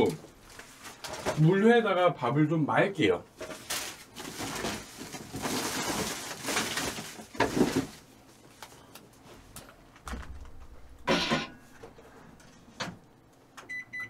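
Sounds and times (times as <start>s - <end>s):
rustling and handling noises: 0.0s - 1.7s, 3.4s - 13.1s
microwave oven humming: 3.2s - 14.0s.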